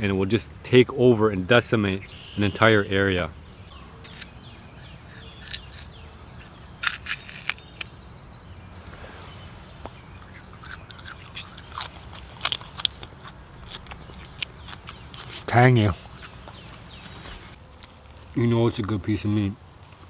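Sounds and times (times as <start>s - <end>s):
chewing crunches: 4.1s - 8.0s, 9.9s - 18.4s
stalk cracking: 5.1s - 8.0s, 9.8s - 18.9s.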